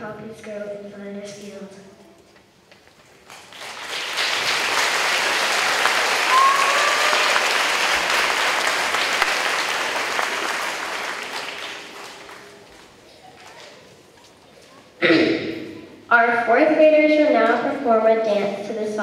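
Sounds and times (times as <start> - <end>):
audience clapping: 2.9 - 13.8.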